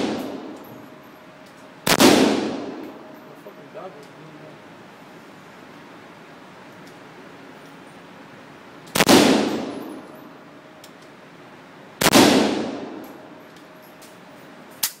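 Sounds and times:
rifle shots echoing indoors: 0.0s - 0.9s, 1.8s - 3.2s, 8.9s - 10.3s, 12.0s - 13.4s
faint metal clinks: 0.2s - 1.8s, 2.8s - 4.2s, 9.7s - 10.5s, 13.0s - 15.0s.

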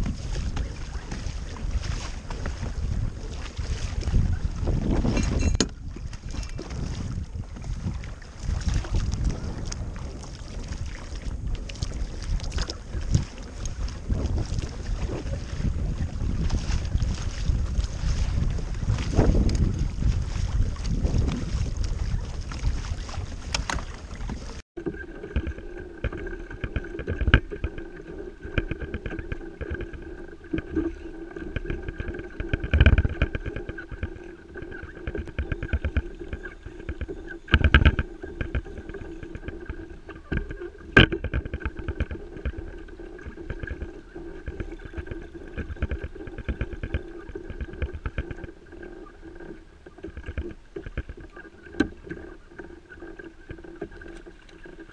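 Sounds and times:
wind buffeting microphone: 0.0s - 24.6s, 25.3s - 54.9s
whirring hum with fine ticking: 24.8s - 54.9s.

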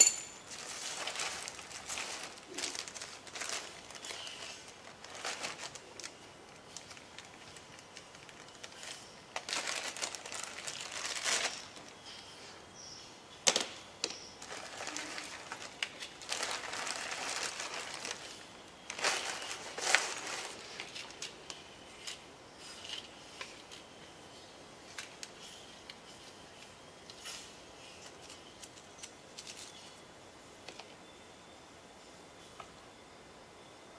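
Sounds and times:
plastic bags crinkling: 0.0s - 12.2s, 14.4s - 23.8s.

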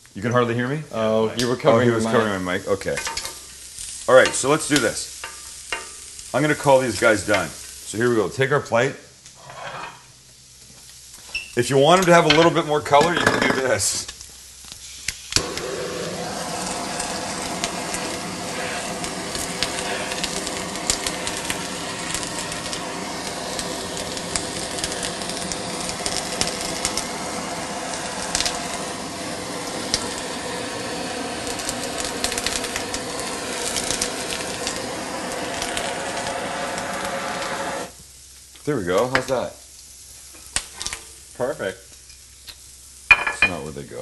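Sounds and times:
butane torch hissing: 0.0s - 44.0s
torch ignition click: 14.0s - 37.9s.

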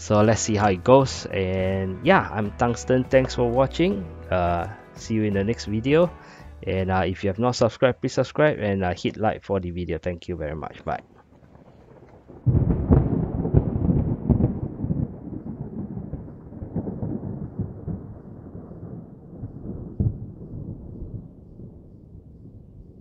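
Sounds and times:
thunder-like rumble: 10.7s - 23.0s.

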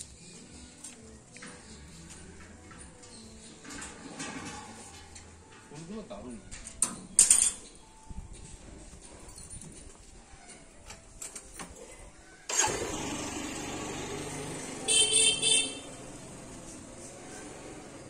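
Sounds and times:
motor engine running: 12.5s - 18.0s.

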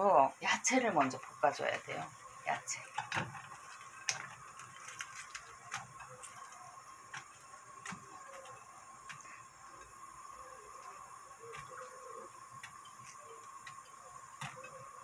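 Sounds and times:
faint steady tone: 5.5s - 15.0s.

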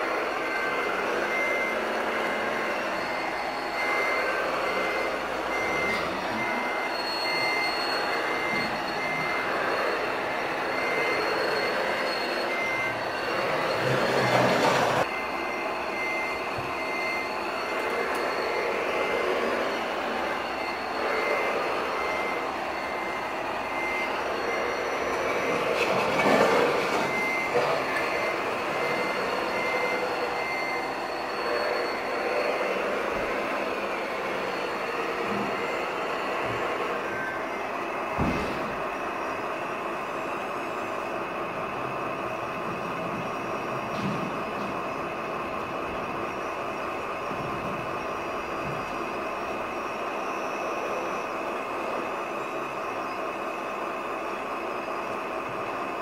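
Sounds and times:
reversing alarm beeping: 0.0s - 56.0s.

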